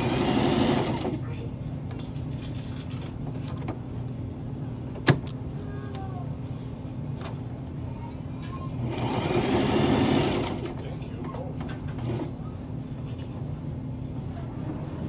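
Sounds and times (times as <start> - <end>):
sewing machine stitching: 0.0 - 1.2, 8.8 - 10.8
low steady hum: 0.0 - 15.0.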